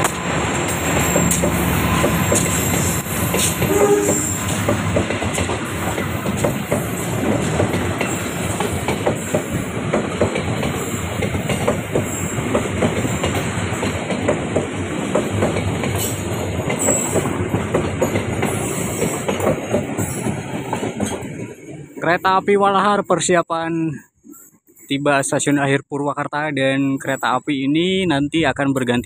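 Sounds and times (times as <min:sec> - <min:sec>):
train wheels clattering over rail joints: 0:00.0 - 0:21.7.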